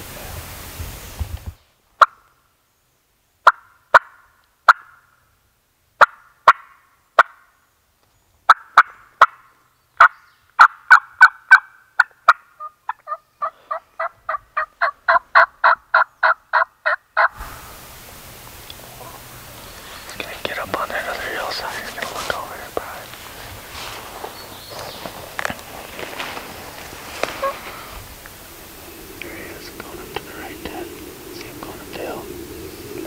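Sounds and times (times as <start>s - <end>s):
turkey clucking and yelping: 10.0s - 17.6s, 27.2s - 29.2s.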